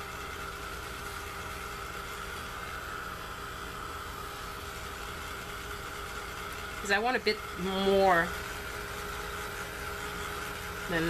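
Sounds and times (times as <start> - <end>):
hot-air blower whooshing: 0.0 - 11.0.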